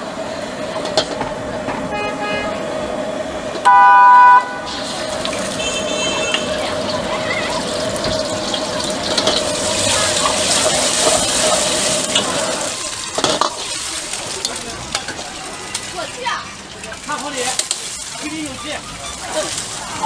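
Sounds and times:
egg sizzling in oil: 4.4 - 20.0.

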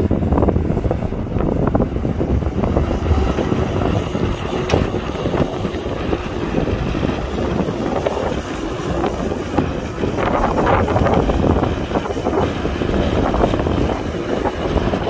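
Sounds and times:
diesel engine running: 0.0 - 15.0
knocks and clanks: 3.2 - 7.0.

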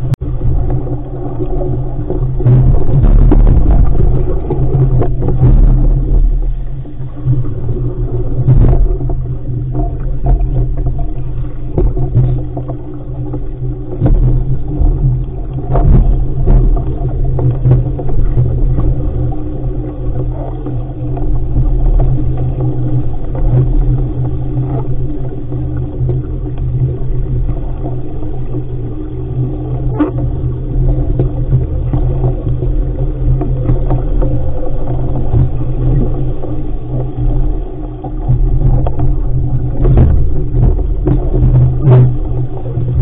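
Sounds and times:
water rushing along hull: 0.0 - 43.0
wind rumble on microphone: 0.0 - 43.0.

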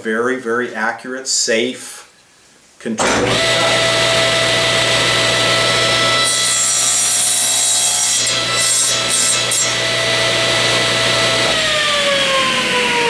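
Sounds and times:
saw blade spinning down: 3.0 - 13.0
table saw whining: 3.0 - 13.0.

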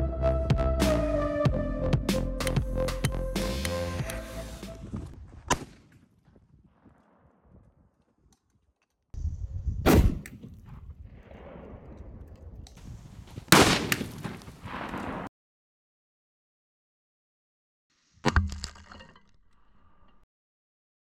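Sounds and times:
firecracker bangs: 13.5 - 15.3.

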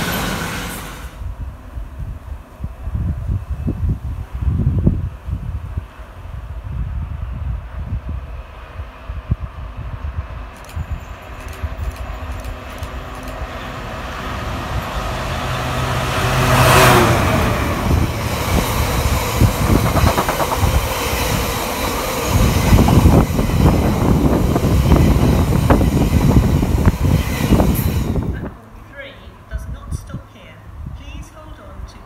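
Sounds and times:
locomotive passing: 0.0 - 1.8, 7.1 - 30.8
train rumble and wheel clatter: 0.0 - 32.0.

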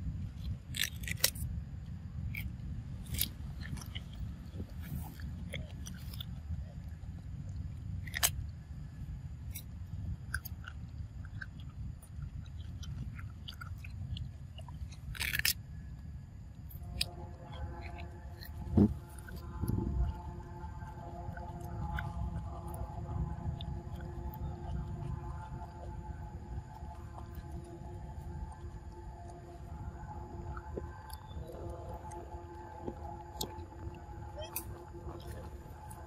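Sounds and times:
low rumble: 0.0 - 36.0
monkey crunching cucumber: 0.7 - 1.5, 2.3 - 6.4, 8.0 - 8.4, 9.5 - 15.6.

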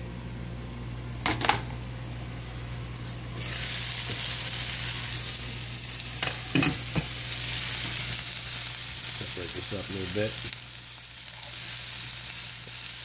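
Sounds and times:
low steady hum: 0.0 - 13.0
vegetables sizzling in a skillet: 2.5 - 13.0.

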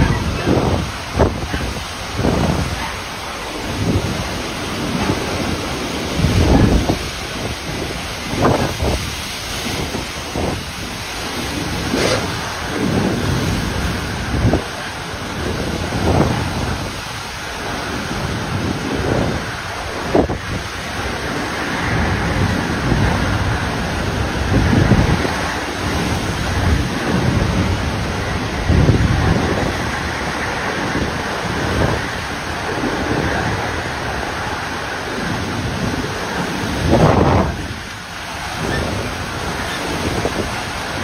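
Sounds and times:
wind buffeting microphone: 0.0 - 41.0
wind-driven heavy rain: 0.0 - 41.0.

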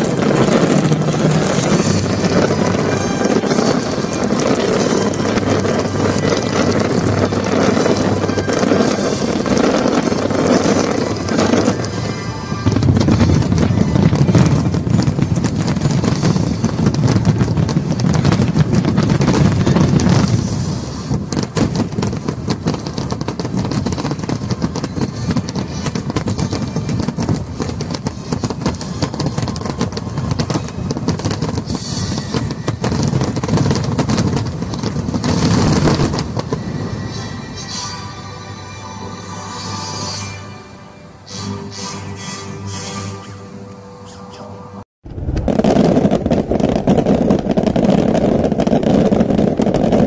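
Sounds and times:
fireworks bangs and crackling: 0.0 - 40.1, 45.0 - 50.0
music: 0.7 - 16.8, 35.8 - 44.8.

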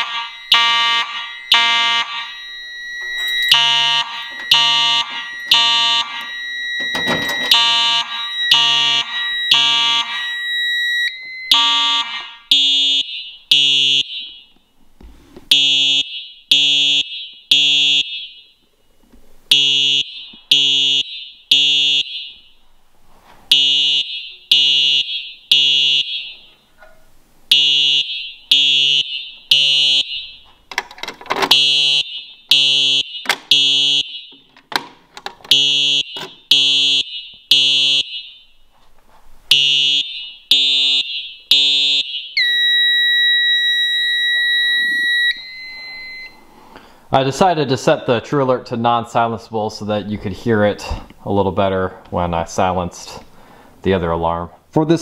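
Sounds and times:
fire alarm horn blasts: 0.0 - 14.5, 15.5 - 18.6, 19.5 - 22.6, 23.5 - 26.5, 27.5 - 30.5, 31.5 - 34.4, 35.5 - 38.6, 39.5 - 46.4.

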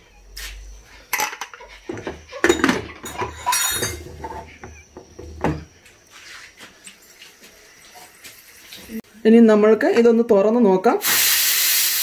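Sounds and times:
metal lid clinking and knocking: 1.1 - 5.6.

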